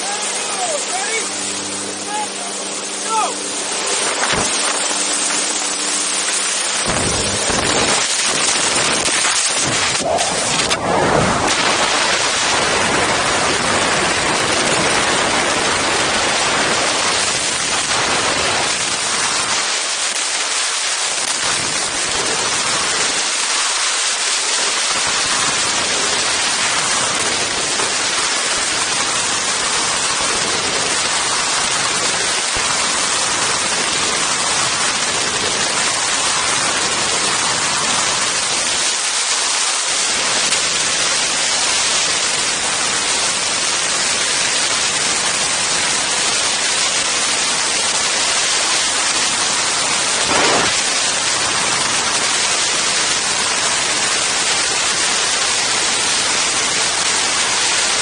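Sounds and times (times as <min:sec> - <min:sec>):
wind rushing over microphone: 0:06.6 - 0:19.4.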